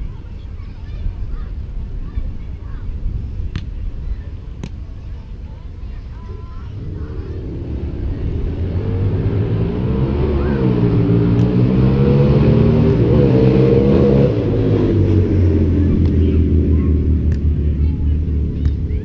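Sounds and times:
engine running: 5.8s - 19.0s.

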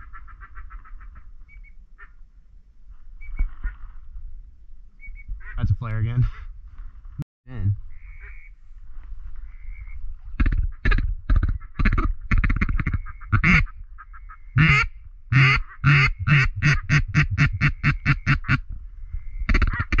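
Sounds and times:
duck call quacks: 9.8s - 18.6s, 19.5s - 20.0s.

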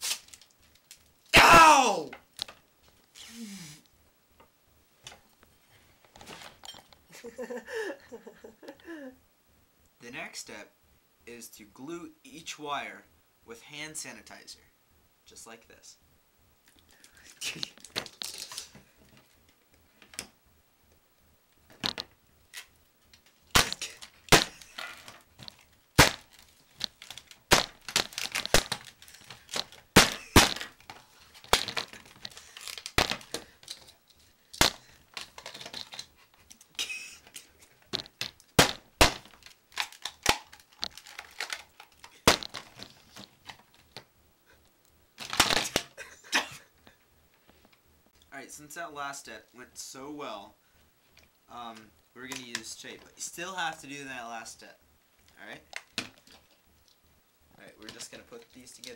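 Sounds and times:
broken plastic clicking and crinkling: 0.2s - 1.1s, 16.7s - 20.3s, 21.7s - 44.1s, 45.2s - 46.0s, 55.2s - 57.0s.

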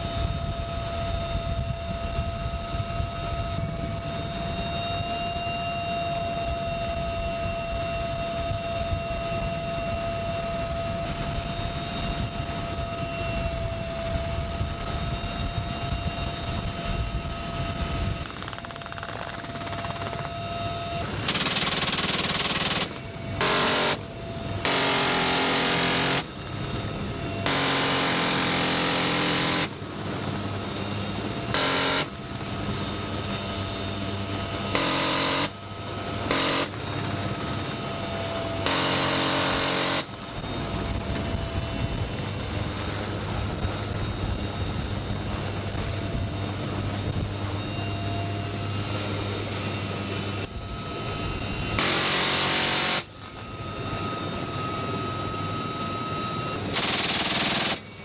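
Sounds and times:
helicopter engines and rotor: 0.0s - 58.0s
machine gun bursts: 18.2s - 20.2s, 21.2s - 24.0s, 24.7s - 26.3s, 27.5s - 29.8s, 31.6s - 32.2s, 34.8s - 35.6s, 36.3s - 36.8s, 38.7s - 40.1s, 51.8s - 53.1s, 56.8s - 57.9s.

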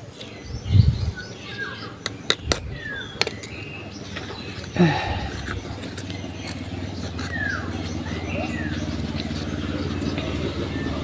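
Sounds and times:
motor engine running: 2.7s - 11.0s.

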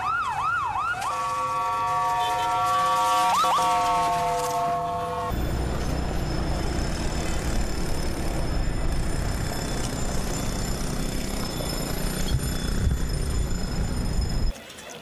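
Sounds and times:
low vehicle rumble: 5.3s - 14.5s.

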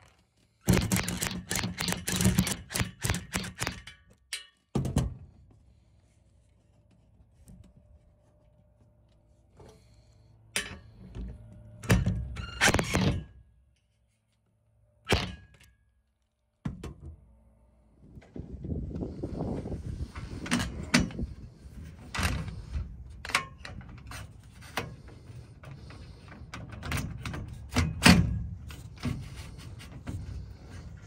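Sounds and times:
drill driving screws into metal: 0.6s - 3.9s.

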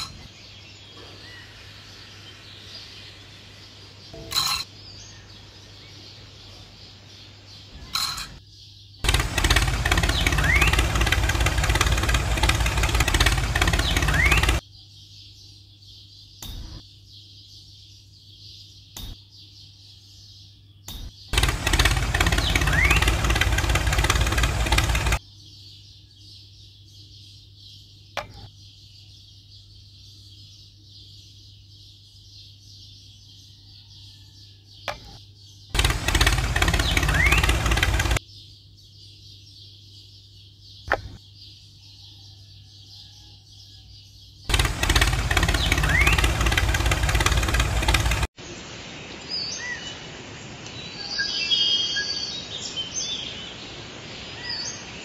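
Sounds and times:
engine-like machine noise: 9.0s - 14.6s, 21.0s - 25.2s, 34.9s - 38.2s, 44.5s - 48.4s
steady high hiss: 48.4s - 51.0s.

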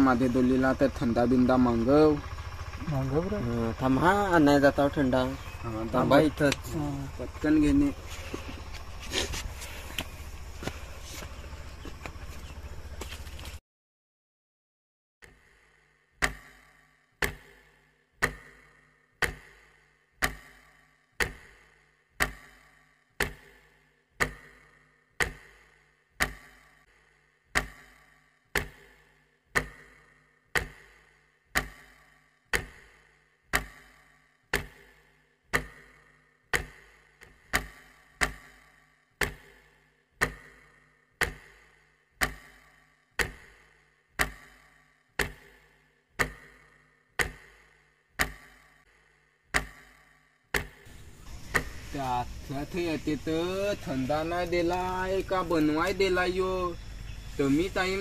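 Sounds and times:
clock ticking: 15.2s - 48.9s, 49.5s - 50.9s.

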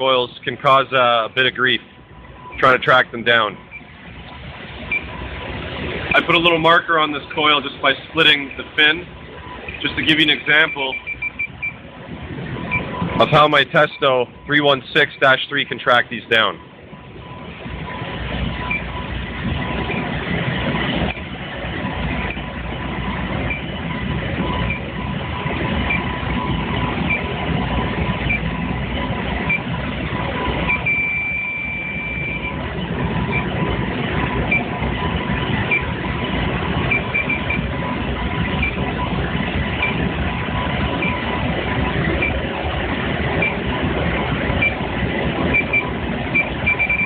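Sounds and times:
air handler noise: 0.0s - 47.0s
leak detector chirping: 9.6s - 11.8s, 16.9s - 20.1s, 23.4s - 27.4s, 30.4s - 32.6s, 36.8s - 39.2s, 39.8s - 41.4s, 42.2s - 42.4s, 45.5s - 47.0s.

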